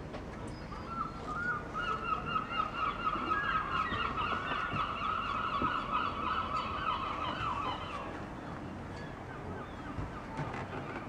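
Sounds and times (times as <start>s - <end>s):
flock of birds calling: 0.7s - 11.0s.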